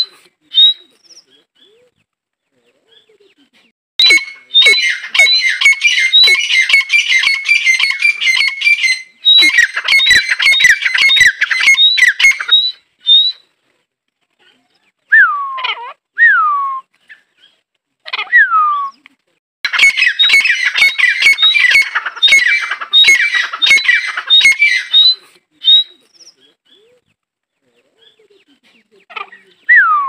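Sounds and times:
francolin calling harsh notes: 4.0s - 12.8s.

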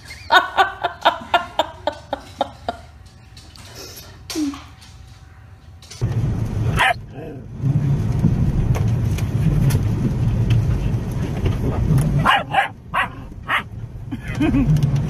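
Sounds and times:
steady low rumble: 5.8s - 15.0s
dog barking: 6.8s - 7.0s, 12.2s - 13.7s.

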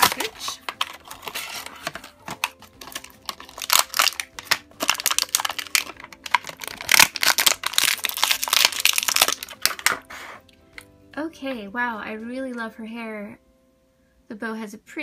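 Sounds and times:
plastic packaging crinkling: 0.0s - 10.4s.

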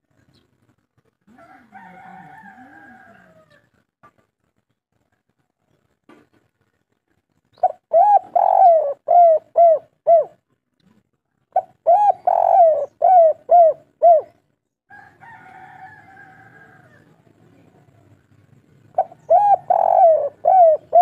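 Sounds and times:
dove cooing: 7.6s - 10.4s, 11.5s - 14.4s, 18.8s - 21.0s.

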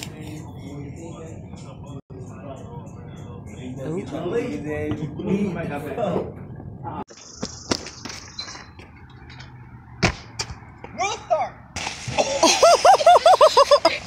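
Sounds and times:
young people laughing and whooping: 12.2s - 14.0s.

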